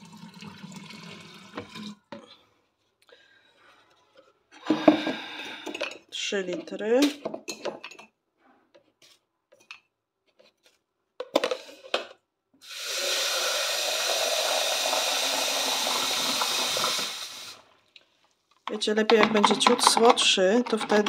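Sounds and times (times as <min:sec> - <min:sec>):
tap water running into container: 0:00.0 - 0:02.1, 0:12.6 - 0:17.6
kitchenware clinking: 0:04.7 - 0:08.2, 0:18.8 - 0:21.0.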